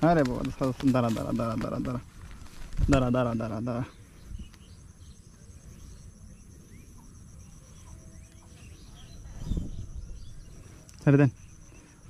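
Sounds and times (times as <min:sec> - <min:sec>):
soft low rustle: 0:00.0 - 0:03.2
insects trilling: 0:00.0 - 0:12.0
faint bird chirps: 0:01.2 - 0:12.0.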